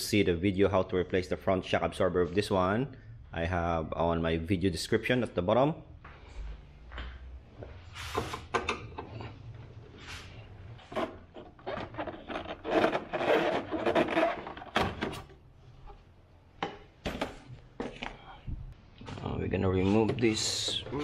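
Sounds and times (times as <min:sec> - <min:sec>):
plastic scraping and rubbing: 0:10.7 - 0:15.4.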